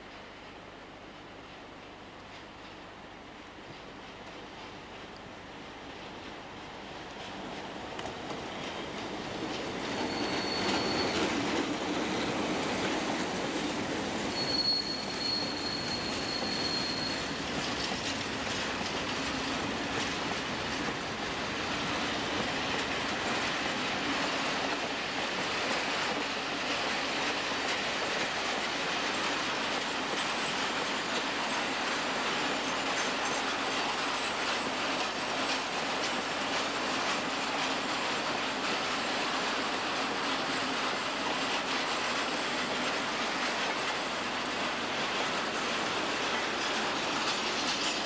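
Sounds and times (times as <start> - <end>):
wagons rumbling by: 7.8 - 23.4
train wheel squeal: 8.3 - 19.4.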